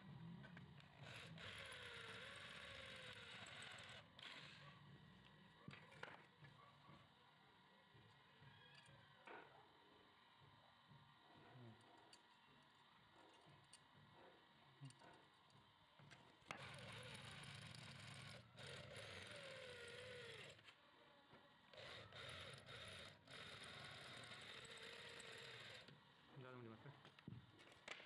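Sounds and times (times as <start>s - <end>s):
electric drill boring through metal: 0.0s - 7.0s, 7.9s - 11.1s, 16.0s - 20.8s, 21.7s - 26.1s.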